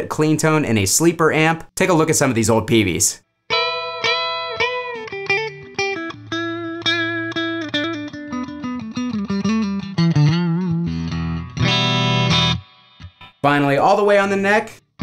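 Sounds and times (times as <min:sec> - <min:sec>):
clean electric guitar notes and chord: 0:03.5 - 0:13.4.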